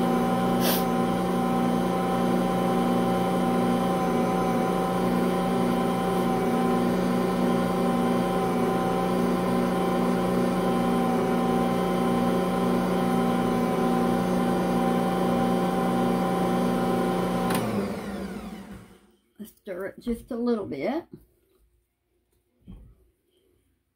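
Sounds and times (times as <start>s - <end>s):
stand mixer motor humming: 0.0s - 19.0s.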